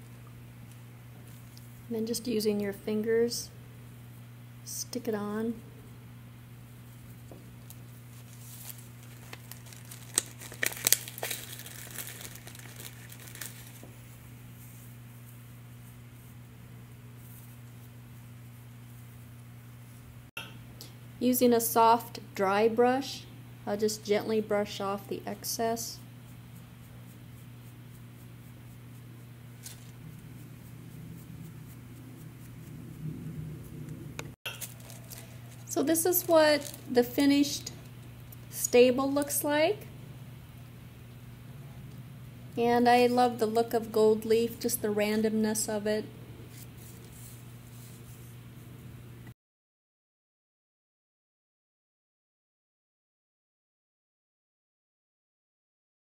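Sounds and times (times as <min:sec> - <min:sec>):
steady low hum: 0:00.0 - 0:49.4
plastic bag crinkling: 0:07.6 - 0:14.1, 0:29.6 - 0:30.2, 0:34.5 - 0:38.6
paintbrush brushing on ceramic: 0:13.9 - 0:19.4, 0:26.1 - 0:33.8, 0:46.5 - 0:48.7.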